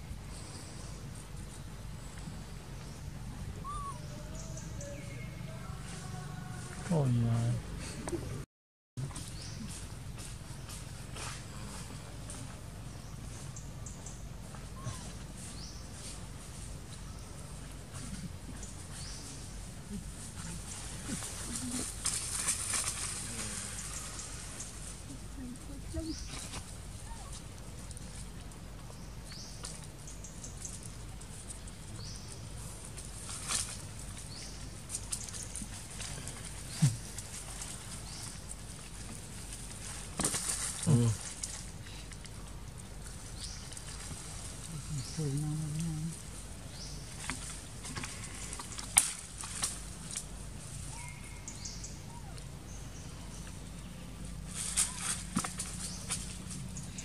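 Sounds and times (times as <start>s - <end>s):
faint high chirps: 3.0s - 5.5s
soft clicks and rustles: 9.1s - 45.1s, 45.8s - 50.9s
dry leaves crackling: 14.4s - 57.0s.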